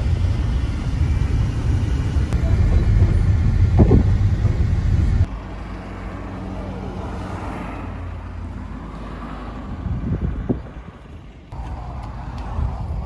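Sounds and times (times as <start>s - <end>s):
engine and road rumble: 0.0s - 13.0s.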